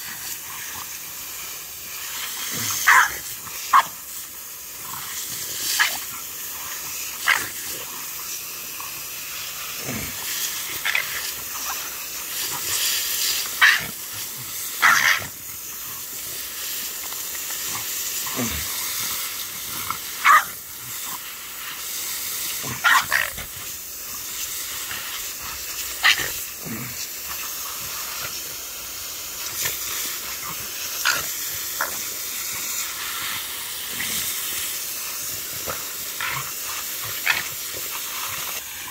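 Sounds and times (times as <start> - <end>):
garden hose spraying water: 0.0 - 38.9
dog barking: 2.8 - 4.0, 14.8 - 15.2, 20.2 - 20.6, 22.8 - 23.3.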